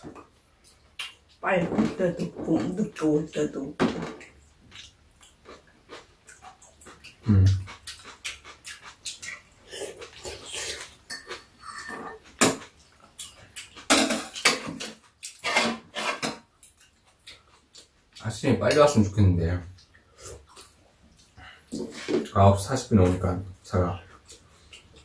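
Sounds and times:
eating mouth sounds: 4.7 - 14.5.

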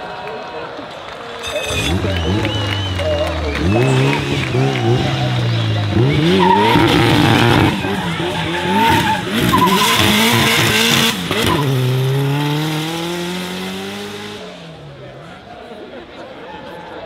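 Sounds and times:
car engine revving: 1.4 - 15.4
tyres screeching: 3.6 - 12.2.

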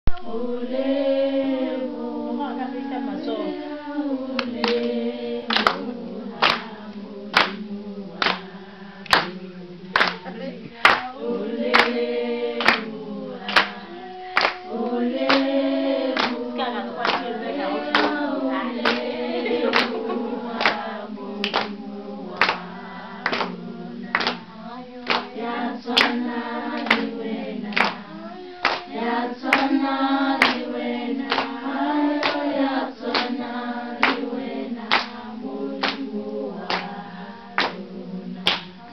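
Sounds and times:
women singing a hymn: 0.1 - 38.9
hand claps: 4.4 - 7.6, 8.2 - 9.4, 10.0 - 12.0, 12.6 - 15.5, 16.2 - 16.4, 17.0 - 18.2, 18.8 - 24.4, 25.0 - 27.1, 27.7 - 35.2, 35.8 - 37.0, 37.6 - 37.8, 38.4 - 38.8.

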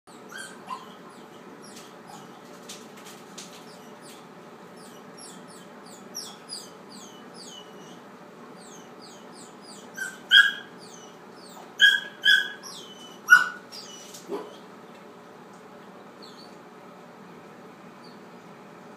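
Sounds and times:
puppy whimpering: 0.1 - 2.3, 4.8 - 8.0, 8.6 - 14.7
puppy yelping: 0.1 - 2.3, 4.8 - 8.0, 8.6 - 14.7.

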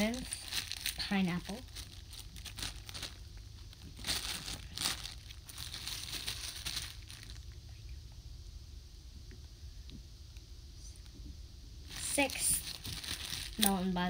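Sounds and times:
plastic bag crinkling: 0.0 - 7.6, 11.9 - 14.0.

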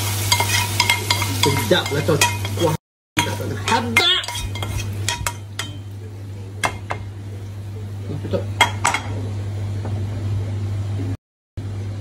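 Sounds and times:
cookware clinking: 0.3 - 5.9, 6.6 - 7.1, 8.6 - 9.2.

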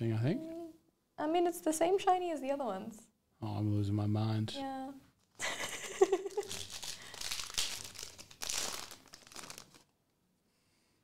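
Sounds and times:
foil wrapper crinkling and tearing: 6.3 - 9.9.

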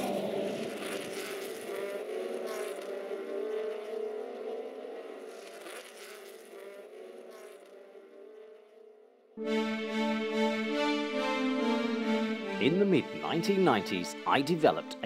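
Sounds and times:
racing car engines running: 0.0 - 9.4.

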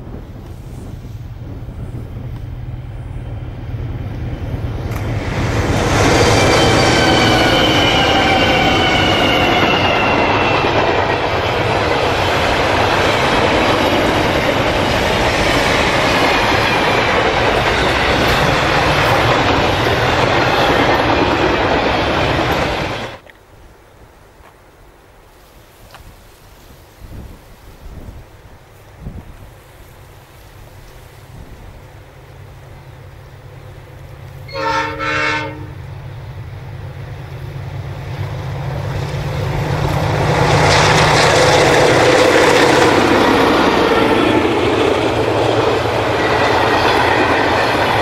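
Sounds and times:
diesel locomotives whining: 0.0 - 23.3, 31.0 - 48.0
train wheels clattering on rail: 4.3 - 23.3, 37.2 - 48.0.

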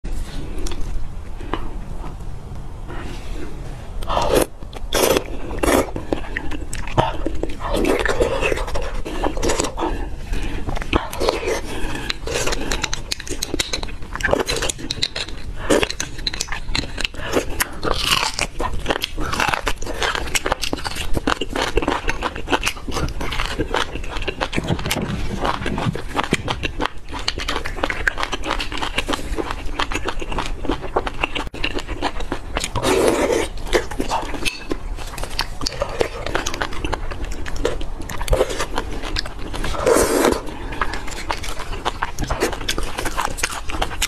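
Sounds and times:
biting and chewing: 0.0 - 44.0
wet mouth clicks and smacks: 10.8 - 17.5
sucking slurps: 39.6 - 44.0.

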